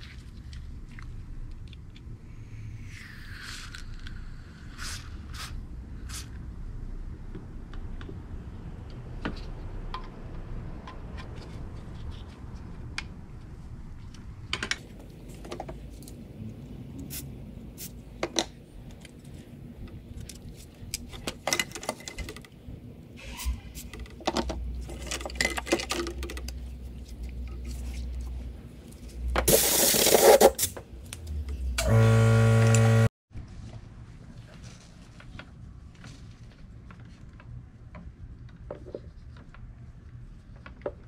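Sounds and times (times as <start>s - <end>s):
loud steady buzz: 31.8s - 33.1s.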